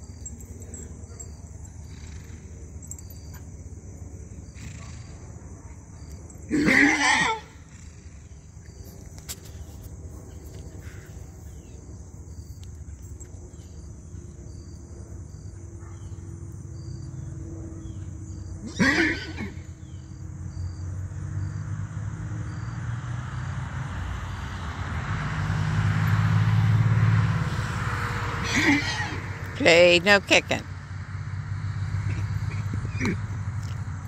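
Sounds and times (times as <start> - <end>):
insects chirping: 0.0 - 34.0
horse whinnying: 6.5 - 7.8, 18.6 - 19.7, 28.4 - 29.3, 32.1 - 33.4.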